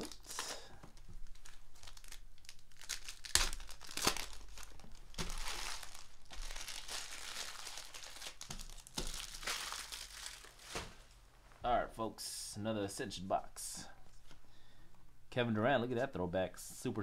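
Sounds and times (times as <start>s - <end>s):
foil wrappers crinkling and tearing: 0.0s - 11.0s.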